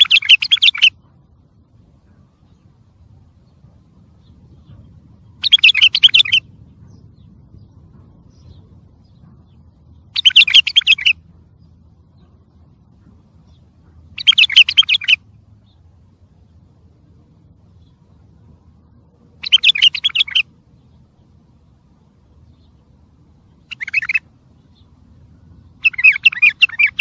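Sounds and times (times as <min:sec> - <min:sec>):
bird warbling: 0:00.0 - 0:01.1, 0:04.2 - 0:07.0, 0:10.0 - 0:11.2, 0:12.9 - 0:15.2, 0:19.4 - 0:20.5, 0:23.5 - 0:27.0.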